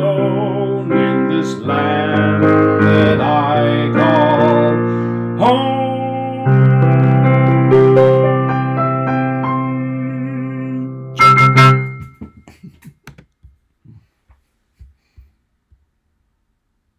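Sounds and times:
digital piano chords: 0.0s - 12.4s.

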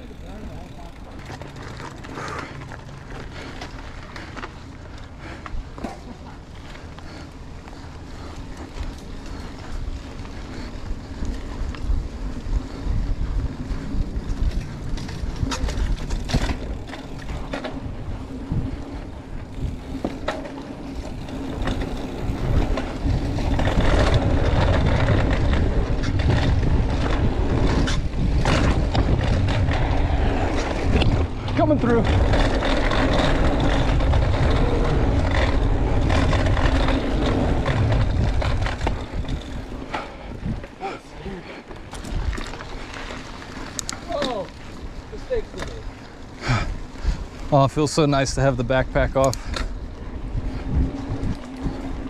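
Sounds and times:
bike knocking and rattling: 0.0s - 52.0s
bike tyres rumbling: 0.0s - 52.0s
wind rushing over microphone: 9.4s - 40.8s, 48.8s - 52.0s.

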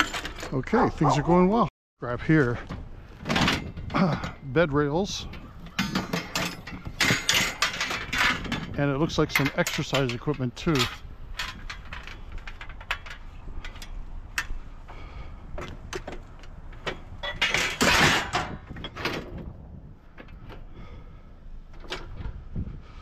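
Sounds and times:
scrap metal knocks and clanks: 0.0s - 0.6s, 2.5s - 19.5s
metal scraping: 3.1s - 14.6s.

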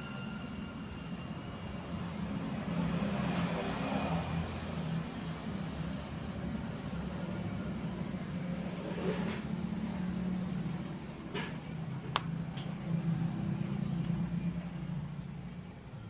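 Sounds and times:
faint metal scrapes: 8.6s - 9.6s.

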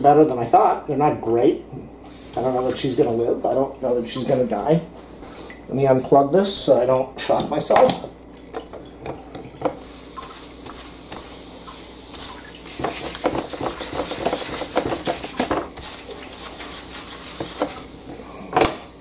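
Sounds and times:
steady hiss: 9.7s - 18.6s
paper towel scrubbing grill plates: 9.8s - 18.3s.

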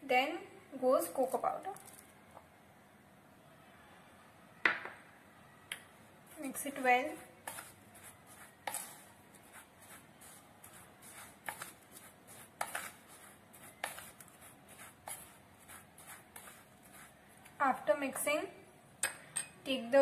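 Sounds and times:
spoon scraping powder in bowl: 6.3s - 18.3s
spoon clicking bowl: 19.0s - 19.6s.

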